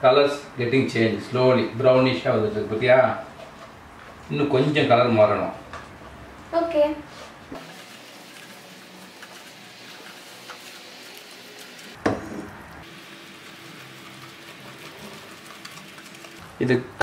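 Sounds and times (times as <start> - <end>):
sugar sizzling in a saucepan: 7.6 - 12.0
spatula stirring: 7.6 - 16.6.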